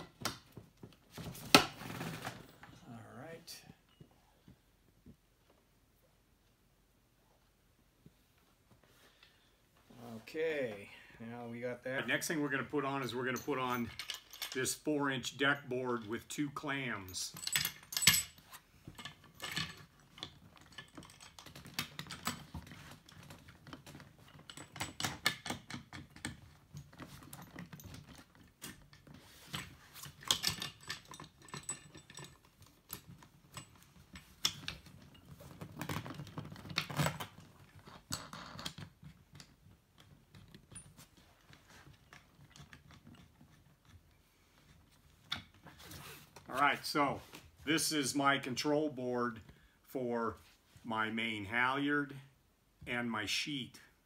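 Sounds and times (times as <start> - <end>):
clicks and rattles of hardware: 13.0 - 14.8, 17.0 - 45.7.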